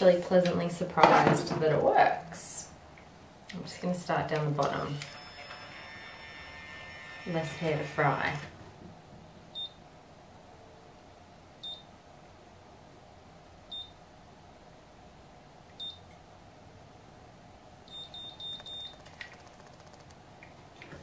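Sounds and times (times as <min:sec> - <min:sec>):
hair curler beeping: 0:05.0 - 0:05.9, 0:17.9 - 0:19.0.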